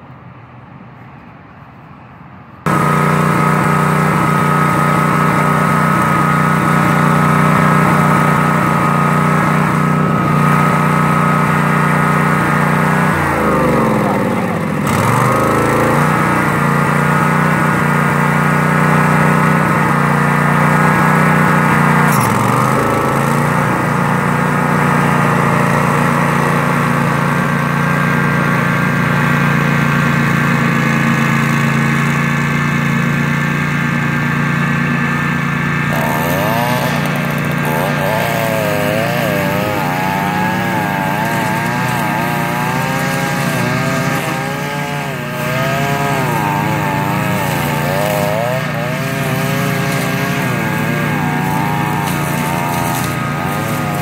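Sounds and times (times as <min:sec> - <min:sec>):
riding lawn mower engine running: 0:00.0 - 0:54.0
high whine: 0:35.9 - 0:54.0.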